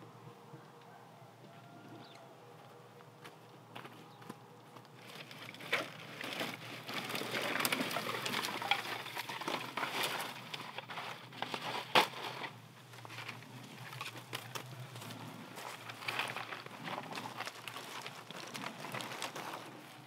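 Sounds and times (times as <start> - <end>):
dry leaves and straw rustling: 4.9 - 20.0.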